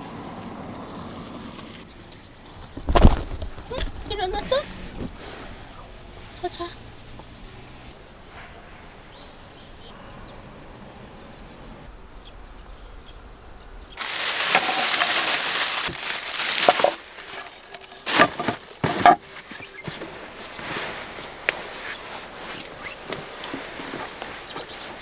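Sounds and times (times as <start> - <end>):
faint chirps: 4.4 - 14.0
plastic bag crinkling: 14.0 - 19.8.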